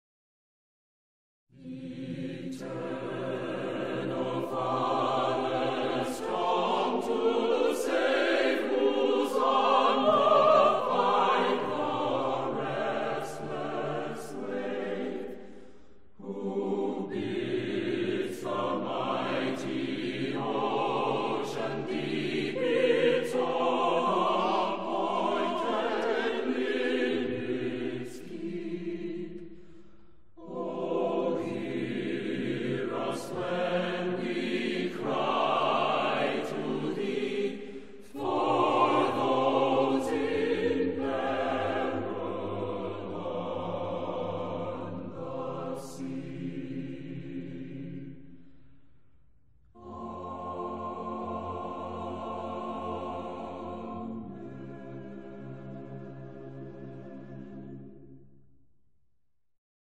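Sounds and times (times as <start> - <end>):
choir singing: 1.5 - 48.8, 49.7 - 58.4.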